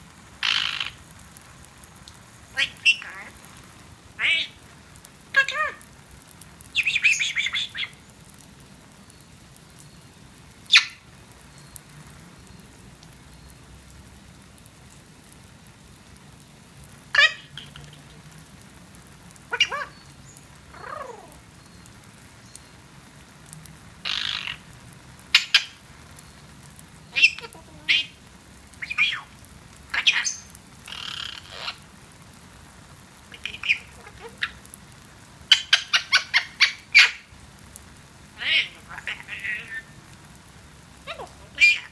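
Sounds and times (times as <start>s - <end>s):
faint hose spray hiss: 0.0s - 41.9s
parrot squawking and chattering: 0.4s - 1.0s, 2.5s - 3.4s, 4.2s - 4.6s, 5.3s - 5.9s, 6.7s - 8.0s, 10.7s - 11.0s, 17.1s - 18.2s, 19.5s - 20.0s, 20.7s - 21.4s, 24.0s - 24.6s, 25.3s - 25.8s, 27.1s - 31.9s, 33.3s - 34.7s, 35.5s - 37.3s, 38.4s - 40.0s, 41.0s - 41.9s.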